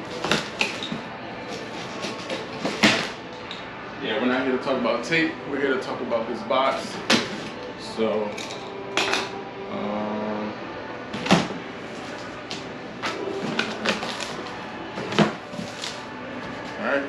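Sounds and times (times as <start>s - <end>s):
cardboard scraping: 0.0s - 3.2s, 11.2s - 16.9s.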